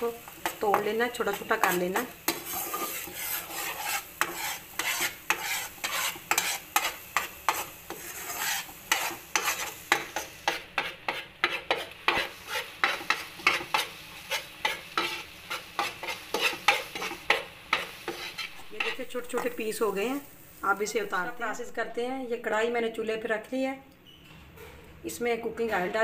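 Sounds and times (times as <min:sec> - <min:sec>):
eggs sizzling in hot oil: 0:00.0 - 0:22.0
metal spatula scraping frying pan: 0:00.2 - 0:19.8.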